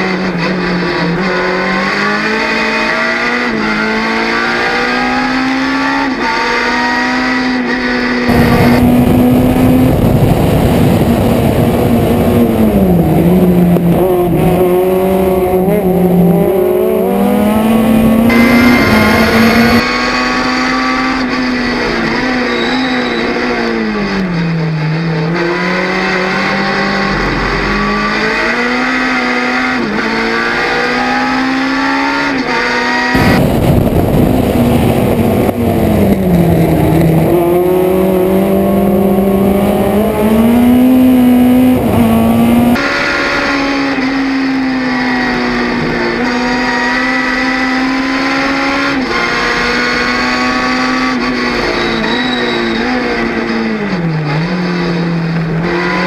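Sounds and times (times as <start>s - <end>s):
race car engine at high revs: 0.0s - 56.0s
wind rush: 8.3s - 19.9s, 33.1s - 42.9s.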